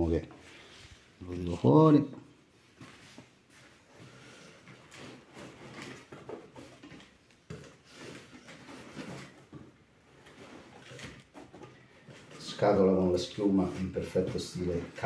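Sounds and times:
cardboard rustling and scraping: 3.6 - 15.0.

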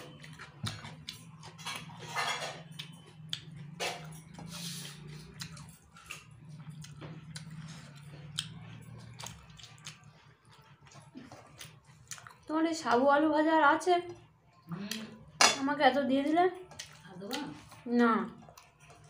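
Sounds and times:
chewing mouth clicks: 2.8 - 12.4.

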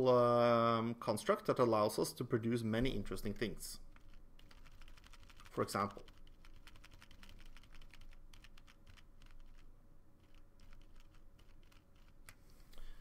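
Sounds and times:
computer keys clicking: 3.9 - 12.4.

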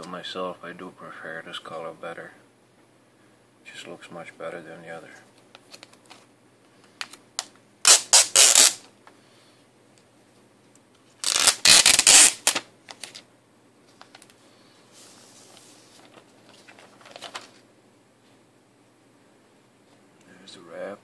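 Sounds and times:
plastic wrap crinkling: 15.4 - 17.6.

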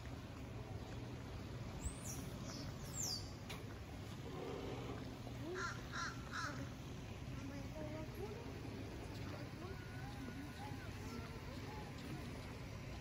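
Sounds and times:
low outdoor background hum: 0.0 - 13.0
crow cawing: 5.6 - 6.6.

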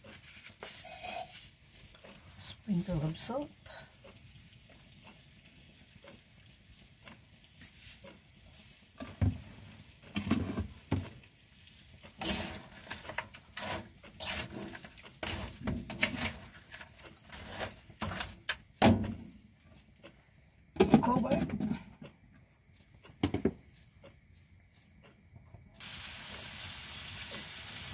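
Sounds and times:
spatula scraping a wok: 0.0 - 1.9, 12.1 - 18.5.

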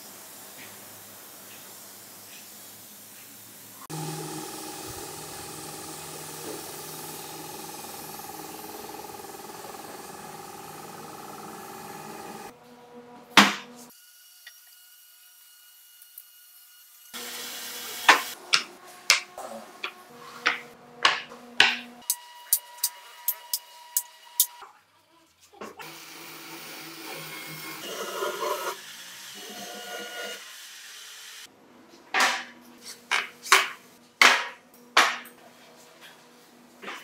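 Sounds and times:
air spray gun hissing: 3.9 - 12.5.

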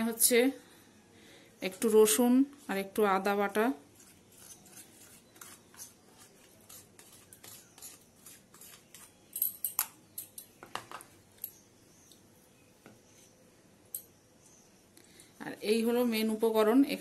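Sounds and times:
spoon scraping plastic container: 3.9 - 9.3.

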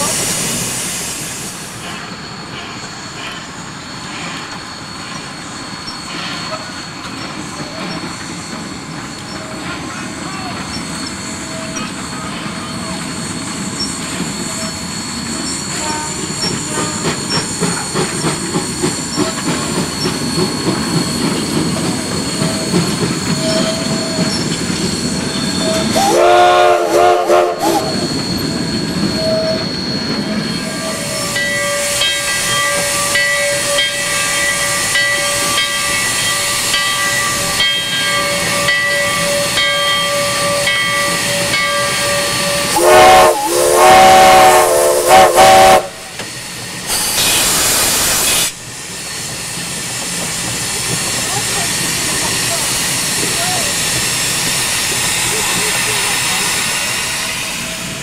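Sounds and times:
steam hissing: 0.0 - 58.0
train cars rumbling and clicking: 0.0 - 58.0
steam whistle blasts: 25.6 - 28.1, 38.4 - 46.2.

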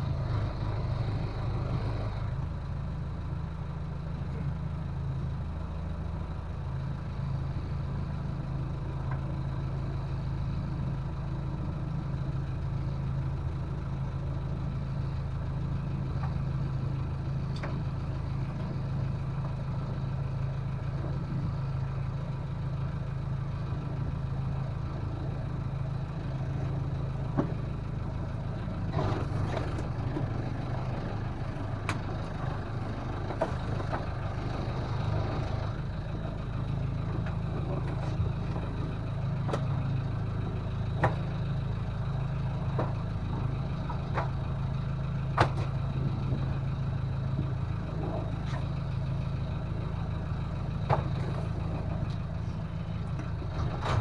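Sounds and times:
boat engine idling: 0.0 - 54.0
knocks and clatter of tow line: 26.2 - 27.9, 28.6 - 49.1, 49.8 - 54.0.

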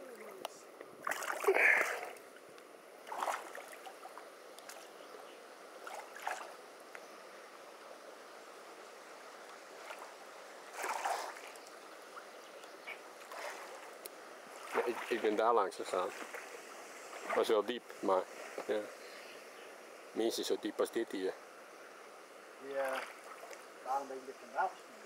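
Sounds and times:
shallow river running over stones: 0.0 - 25.0
splashes of people wading: 1.0 - 2.2, 3.0 - 4.9, 5.8 - 6.6, 9.8 - 12.3, 12.9 - 15.4, 16.0 - 17.5, 22.8 - 23.7.

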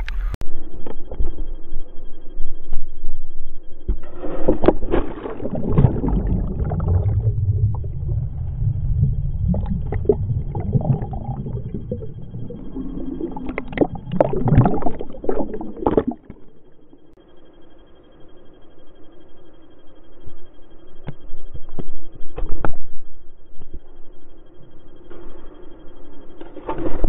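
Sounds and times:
quiet hum: 0.0 - 27.0
underwater rumbling and gurgling: 2.9 - 17.2
water splashing: 4.6 - 17.0.

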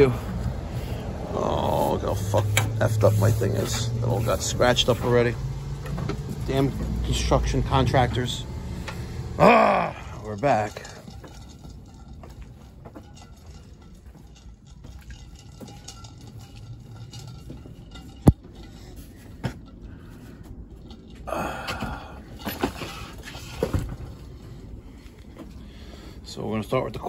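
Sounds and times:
low background rumble: 0.0 - 27.0
rustling and knocks: 10.4 - 21.3.

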